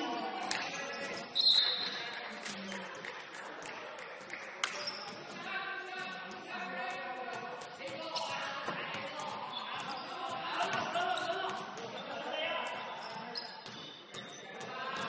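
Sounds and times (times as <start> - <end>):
players' voices: 0.0 - 15.0
basketball bouncing: 4.4 - 15.0.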